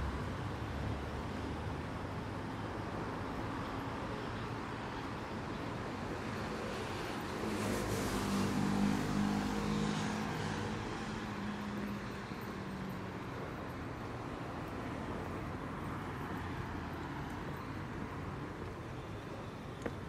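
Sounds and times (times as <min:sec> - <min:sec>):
steady traffic noise: 0:00.0 - 0:20.0
car passing close by: 0:06.7 - 0:11.9.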